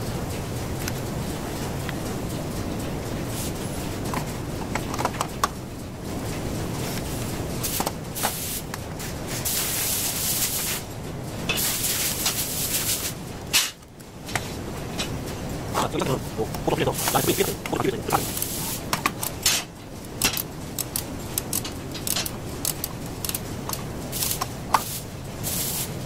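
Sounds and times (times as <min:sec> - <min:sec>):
air hissing: 0:07.6 - 0:08.7, 0:16.1 - 0:18.9, 0:21.3 - 0:26.0
hose reel clicks and knocks: 0:20.2 - 0:24.8.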